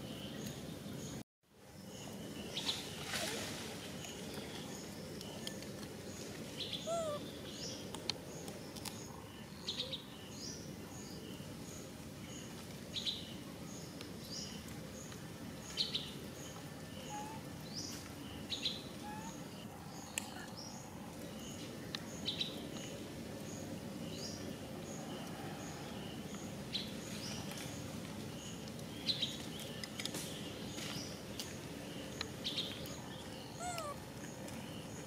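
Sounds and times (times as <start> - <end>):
birds chirping: 0.0 - 12.5, 28.4 - 35.0.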